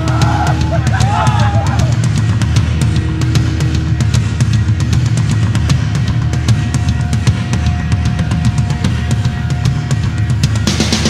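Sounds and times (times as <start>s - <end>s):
driving drum-kit beat: 0.0s - 11.0s
rock music: 0.0s - 11.0s.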